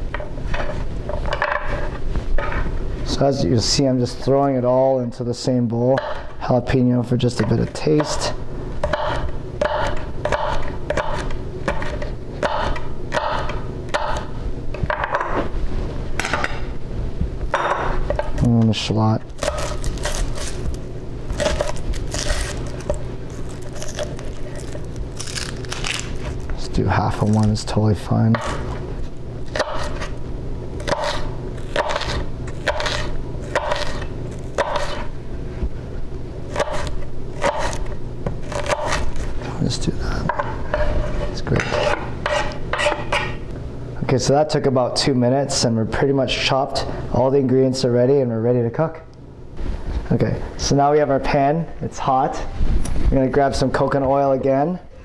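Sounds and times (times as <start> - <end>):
knife chopping on wooden board: 8.8 - 14.3, 19.4 - 20.6, 30.8 - 34.0, 34.6 - 35.1, 36.5 - 39.1, 41.6 - 43.4
knife cutting on wooden board: 40.4 - 43.3.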